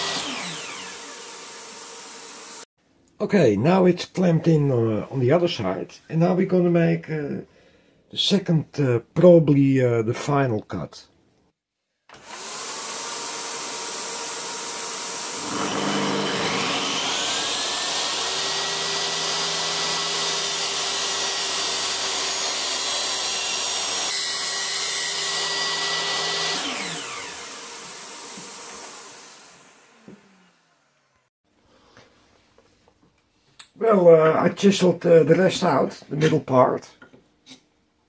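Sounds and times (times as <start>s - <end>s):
dust extractor running: 0.0s - 2.6s, 12.2s - 30.8s
table saw motor whine: 0.0s - 2.6s, 12.2s - 31.3s.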